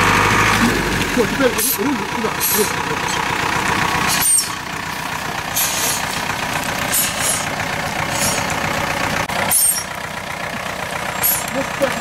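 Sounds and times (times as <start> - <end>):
truck engine at low revs: 0.0 - 12.0.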